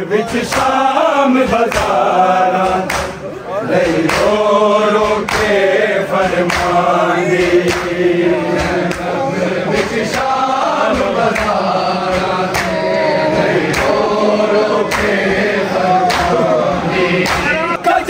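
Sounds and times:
men chanting a lament: 0:00.0 - 0:18.0
chest-beating slaps: 0:02.6 - 0:04.4, 0:05.0 - 0:12.8, 0:13.6 - 0:14.0, 0:14.8 - 0:15.2, 0:17.2 - 0:17.5.

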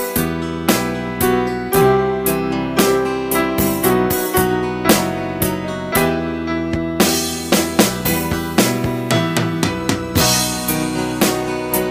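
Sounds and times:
electronic keyboard music: 0:00.0 - 0:11.9
drum beat: 0:06.8 - 0:11.5.

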